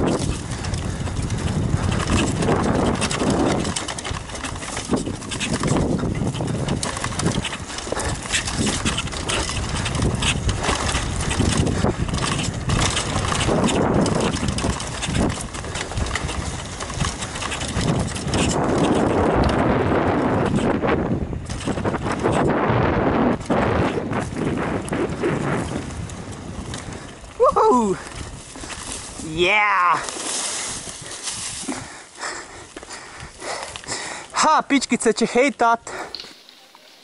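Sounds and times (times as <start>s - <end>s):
bike clattering and knocking: 0.0s - 22.5s
wind on microphone: 0.0s - 34.2s
tyres rumbling over dirt: 0.0s - 35.0s.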